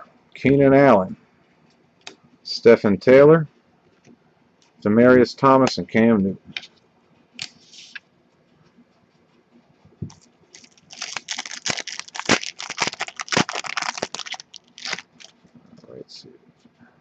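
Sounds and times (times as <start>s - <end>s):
foil rustle: 10.5s - 15.3s
foil pack crinkling and tearing: 10.5s - 15.4s.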